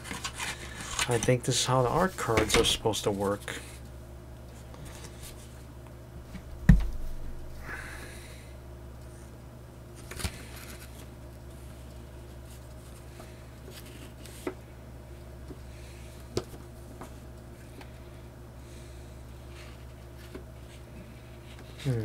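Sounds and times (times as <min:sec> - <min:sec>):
low steady hum: 0:00.0 - 0:22.0
box thump: 0:06.6 - 0:07.4.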